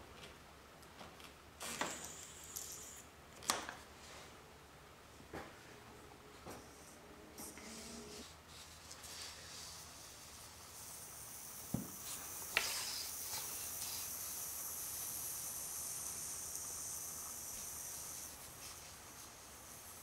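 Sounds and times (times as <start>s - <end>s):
air hissing through pump hose: 7.8s - 20.0s.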